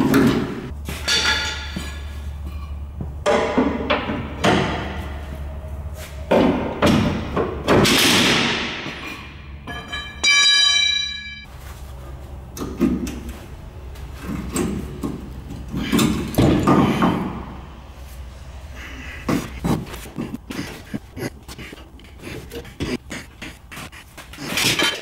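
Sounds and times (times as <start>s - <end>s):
ringing metallic tone: 9.6s - 11.5s.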